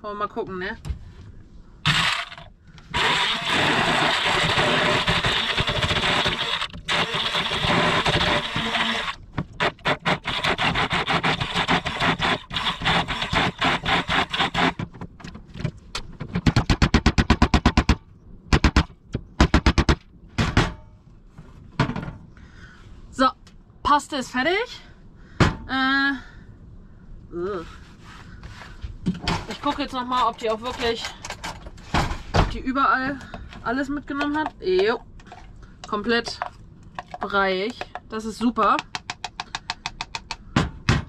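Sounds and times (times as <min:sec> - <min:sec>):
hand blender running: 0:01.9 - 0:02.4, 0:03.0 - 0:14.8.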